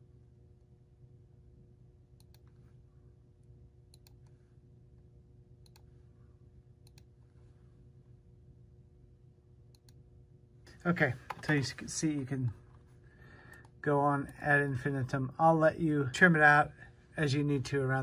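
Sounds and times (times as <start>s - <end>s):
low steady hum: 0.0s - 18.0s
computer mouse clicks: 2.2s - 2.6s, 3.9s - 4.4s, 5.6s - 5.9s, 6.8s - 7.1s, 9.7s - 10.0s.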